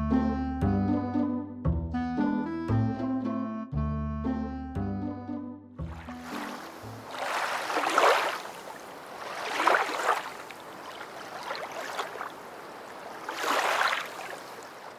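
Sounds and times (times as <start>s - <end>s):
surf washing in and drawing back: 6.1s - 14.9s.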